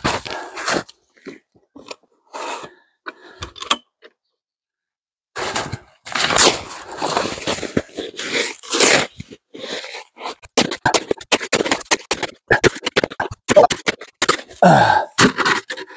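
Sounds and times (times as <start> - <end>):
snow shovel digging: 5.4 - 10.4.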